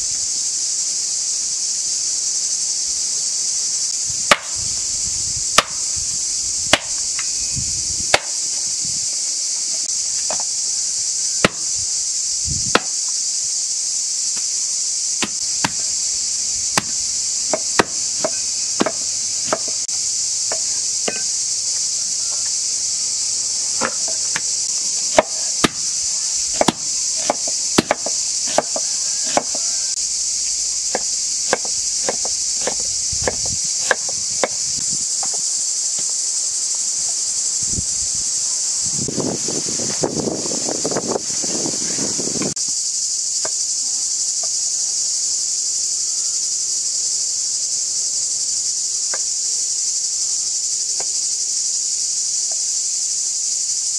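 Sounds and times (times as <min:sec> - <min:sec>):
high-pitched insect chorus: 0:00.0 - 0:53.9
cleaver chopping bones on wood: 0:04.3 - 0:04.6, 0:05.6 - 0:05.8, 0:06.7 - 0:07.3, 0:08.1 - 0:08.4, 0:11.4 - 0:11.7, 0:12.7 - 0:13.0, 0:15.2 - 0:15.9, 0:16.7 - 0:19.8, 0:20.5 - 0:21.3, 0:25.1 - 0:25.9, 0:26.5 - 0:29.7, 0:30.9 - 0:34.6.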